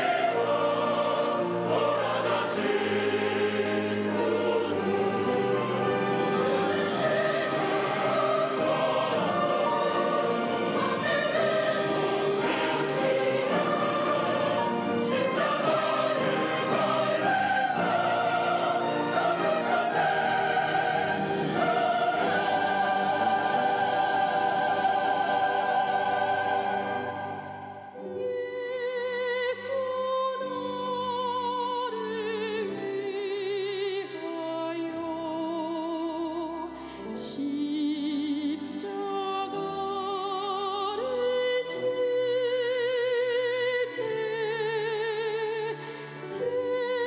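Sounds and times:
instrumental accompaniment: 0.0s - 29.2s
church choir singing: 0.0s - 47.0s.

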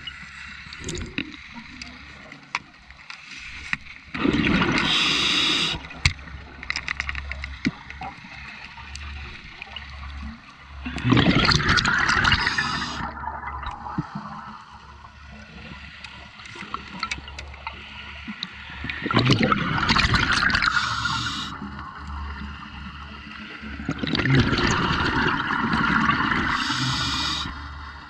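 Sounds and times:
exhaled bubbles underwater: 4.2s - 6.4s, 10.8s - 15.6s, 18.5s - 28.0s.

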